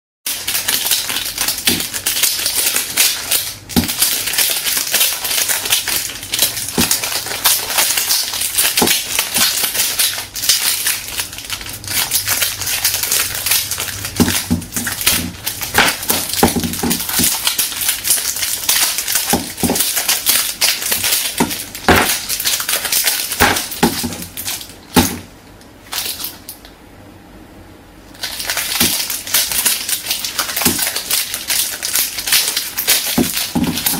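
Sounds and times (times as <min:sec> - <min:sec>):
crushed can crunching on floorboards: 0:28.2 - 0:33.9.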